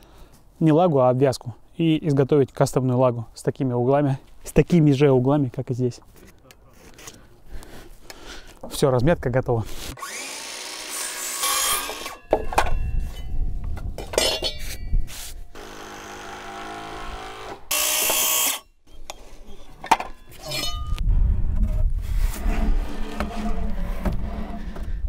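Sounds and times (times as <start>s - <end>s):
power tools on timber: 9.9s - 12.6s, 15.1s - 18.7s.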